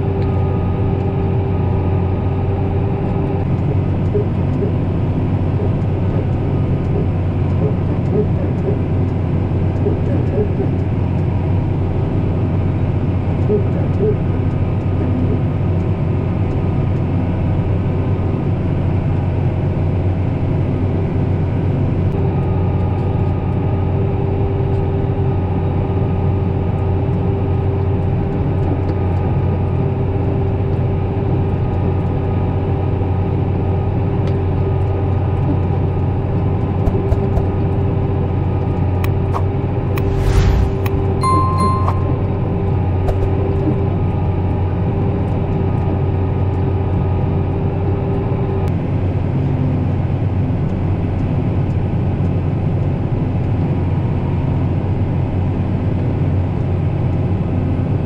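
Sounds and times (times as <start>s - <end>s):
high steady whine: 39.9s - 43.4s.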